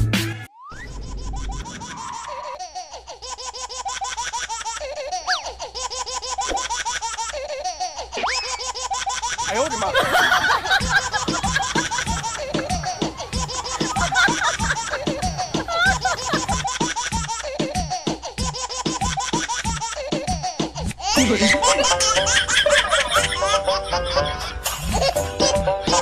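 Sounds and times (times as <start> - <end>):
quick repeated laughter: 9.4 - 17.7
background music: 9.5 - 26.0.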